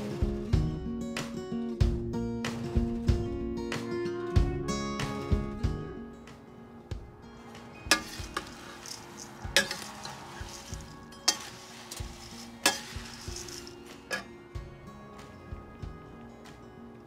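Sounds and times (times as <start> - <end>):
rice flakes rustling: 7.4 - 14.4.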